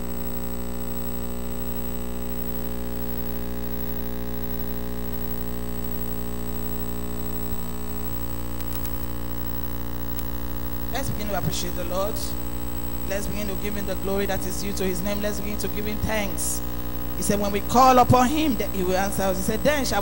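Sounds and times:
electrical mains hum: 0.0s - 20.0s
faint click: 8.1s - 9.1s, 10.1s - 10.3s.

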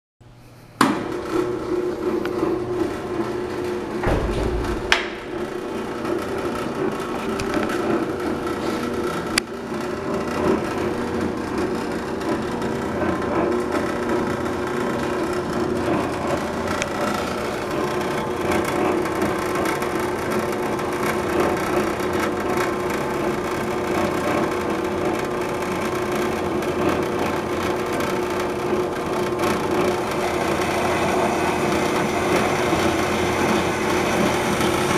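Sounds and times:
band saw cutting wood: 1.1s - 34.9s
low thump: 4.0s - 6.0s
sharp knocks: 4.0s - 6.6s.

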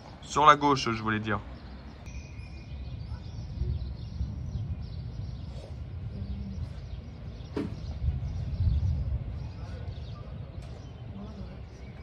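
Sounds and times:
low city rumble: 0.0s - 12.0s
faint bird chirps: 1.6s - 12.0s.

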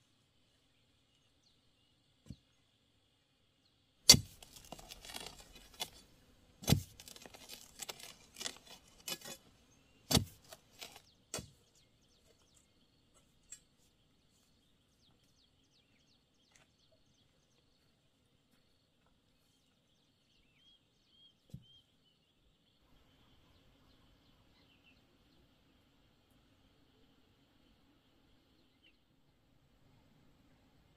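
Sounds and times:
hoe chopping into soil: 4.1s - 9.4s, 10.0s - 11.7s
faint bird chirps: 11.0s - 25.9s.

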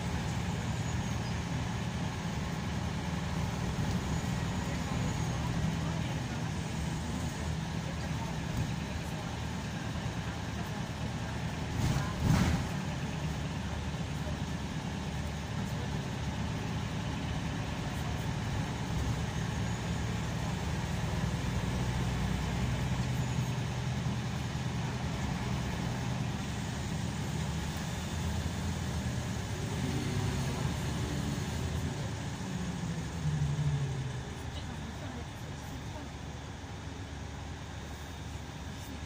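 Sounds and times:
diesel engine drone: 0.0s - 39.0s
road hiss: 0.0s - 39.0s.

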